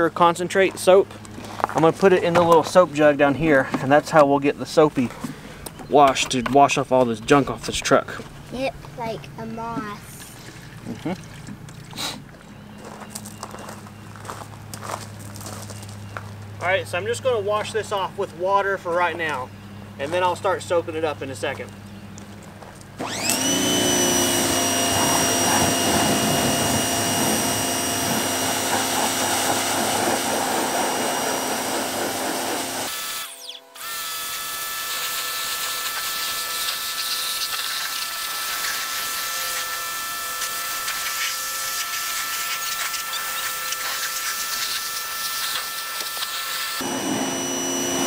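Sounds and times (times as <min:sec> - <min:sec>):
pressure washer motor whine: 0:23.0 - 0:48.0
water jet hissing: 0:24.7 - 0:33.6.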